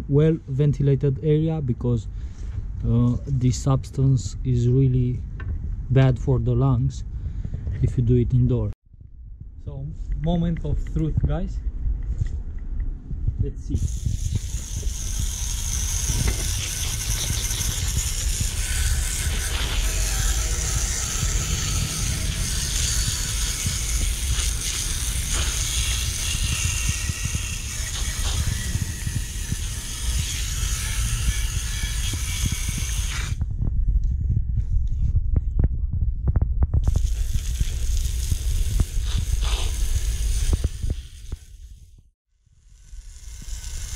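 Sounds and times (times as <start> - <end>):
low rumble: 1.1 - 42.1
hose nozzle spraying water: 13.8 - 33.4, 36.8 - 41.9.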